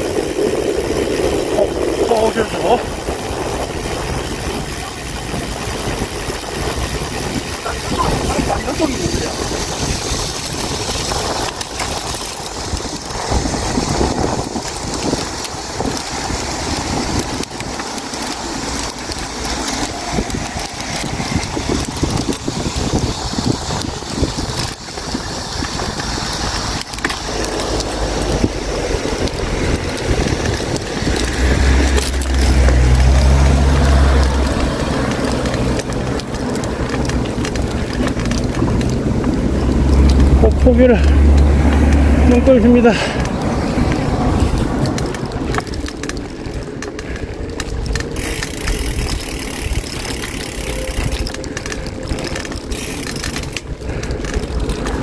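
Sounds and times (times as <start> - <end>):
bicycle road noise: 0.0 - 55.0
heavy low rumble: 0.0 - 55.0
rushing wind: 0.0 - 55.0.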